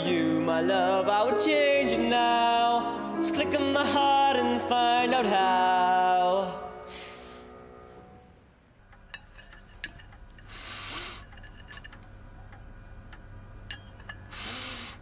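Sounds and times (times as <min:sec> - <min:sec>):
breathy sniff: 0:06.8 - 0:08.0, 0:10.5 - 0:11.4, 0:14.3 - 0:15.0
steady low hum: 0:08.5 - 0:15.0
small clinks and ticks: 0:08.8 - 0:14.4.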